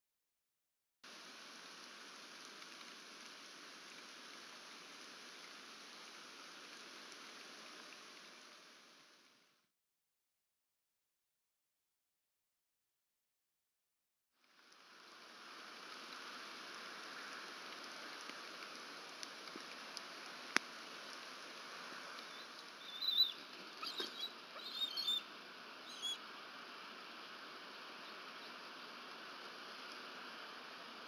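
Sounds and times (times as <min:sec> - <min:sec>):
rain hiss: 0:01.0 - 0:09.7, 0:14.4 - 0:31.0
high bird calls: 0:22.3 - 0:25.2, 0:25.8 - 0:26.2.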